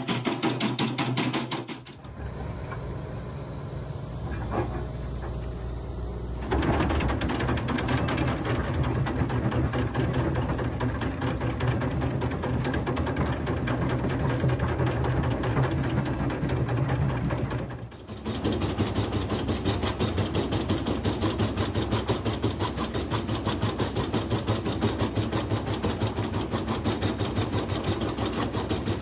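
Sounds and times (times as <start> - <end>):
knocks: 0.0 - 2.0
diesel engine running: 2.0 - 12.6.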